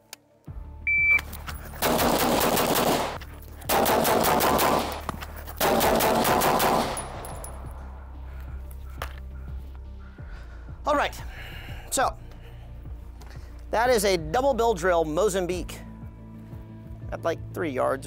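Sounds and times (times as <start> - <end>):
shot timer beep: 0.9 - 1.3
pistol shots: 1.8 - 7.6.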